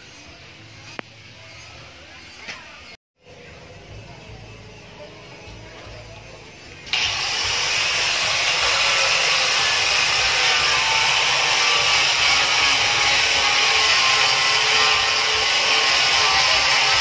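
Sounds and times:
angle grinder sanding wood: 0:06.9 - 0:17.0.

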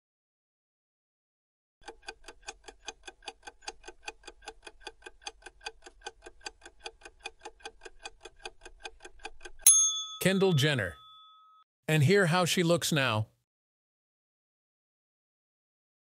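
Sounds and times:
clock ticking: 0:01.8 - 0:09.6.

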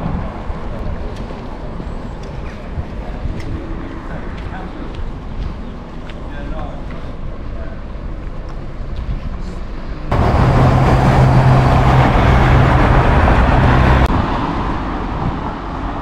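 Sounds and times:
vehicle engine humming: 0:00.0 - 0:16.0
loud noise: 0:10.1 - 0:15.2.

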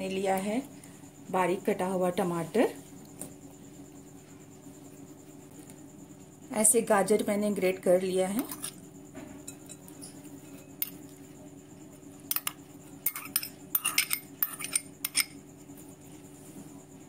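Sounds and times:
spoon clinking against bowls: 0:09.4 - 0:11.0, 0:12.3 - 0:15.4.

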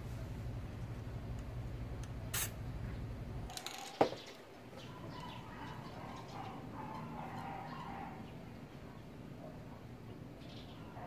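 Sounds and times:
low steady hum: 0:00.0 - 0:11.0
aerosol spray paint burst: 0:02.3 - 0:02.6.

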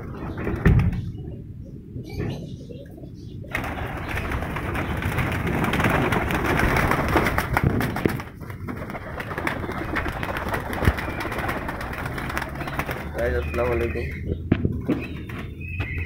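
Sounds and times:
pigeons flapping wings: 0:03.5 - 0:15.6.

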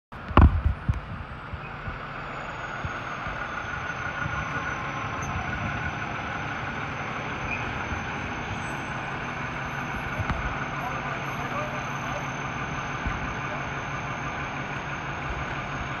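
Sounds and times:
fire engine diesel engine: 0:00.1 - 0:16.0
high whine: 0:00.1 - 0:16.0
loud thump: 0:00.3 - 0:02.0, 0:13.0 - 0:13.3.

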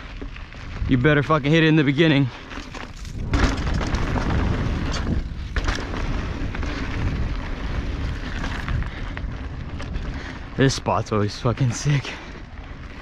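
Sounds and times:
bike tyres rolling on dirt: 0:00.0 - 0:13.0
wind rumbling on microphone: 0:00.0 - 0:13.0
bike knocks and rattles: 0:02.4 - 0:10.3.

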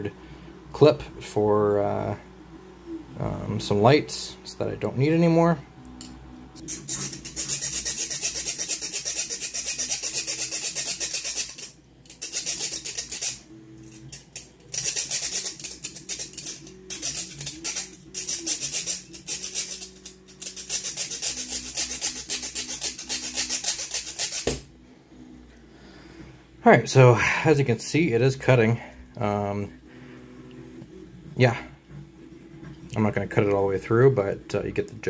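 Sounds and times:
hacksaw rasping through steel: 0:06.6 - 0:24.6.

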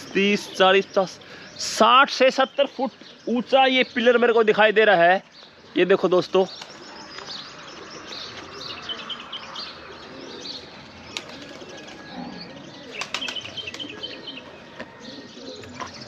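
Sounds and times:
small birds chirping: 0:00.0 - 0:16.0
pigeons flapping wings: 0:10.8 - 0:12.1, 0:12.8 - 0:14.2.

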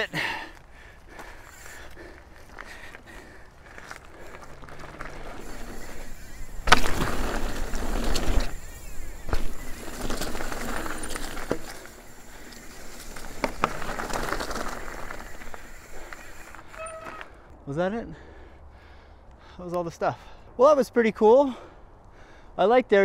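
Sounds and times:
bike tyres crunching on dirt: 0:00.0 - 0:17.5
bike clicking and rattling: 0:00.2 - 0:17.5
loud thud of bike landing: 0:06.6 - 0:08.5, 0:09.2 - 0:10.4.

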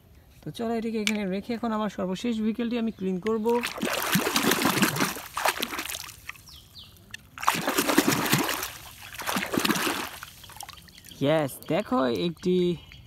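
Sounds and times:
water trickling: 0:03.3 - 0:12.6
toy splashing in water: 0:03.4 - 0:06.5, 0:07.1 - 0:10.9.

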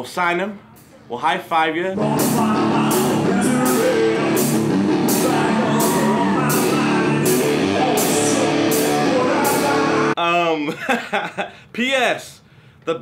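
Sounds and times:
rock music: 0:02.0 - 0:10.2.

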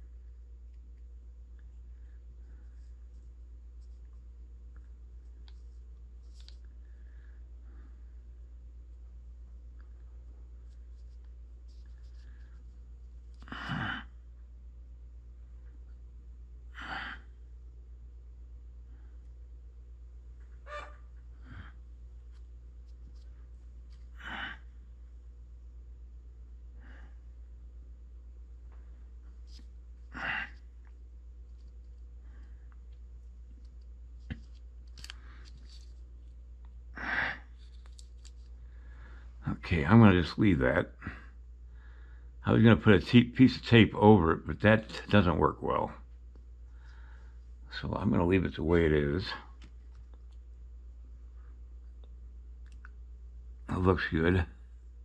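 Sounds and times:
steady low hum: 0:00.0 - 0:55.0
person sighing: 0:13.4 - 0:14.1, 0:24.2 - 0:24.7, 0:37.0 - 0:37.5.

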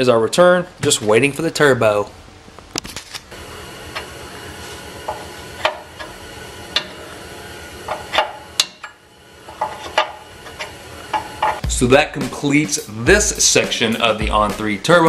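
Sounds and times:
steady hiss: 0:09.2 - 0:15.0.

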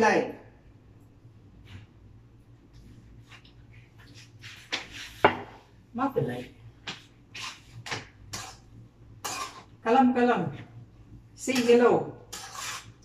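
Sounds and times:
metal ladle scraping wok: 0:09.2 - 0:09.7, 0:11.5 - 0:13.0.

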